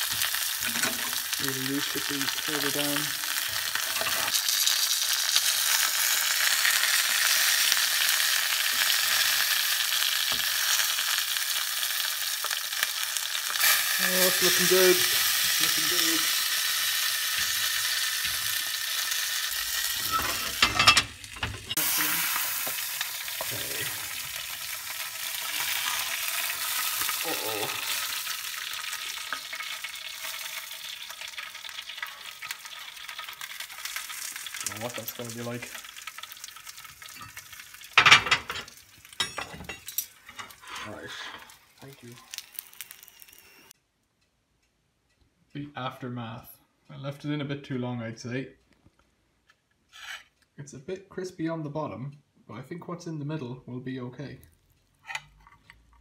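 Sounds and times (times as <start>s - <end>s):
meat sizzling in fat: 0.0s - 43.8s.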